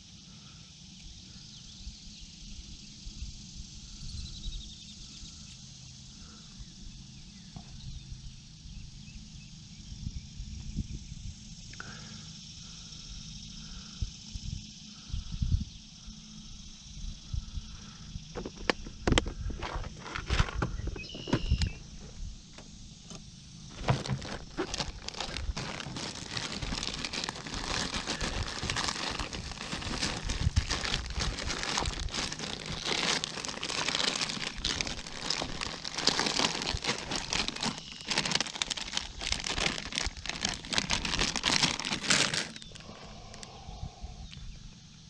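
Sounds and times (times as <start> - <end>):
plastic packages crinkling: 23.7 - 43.4.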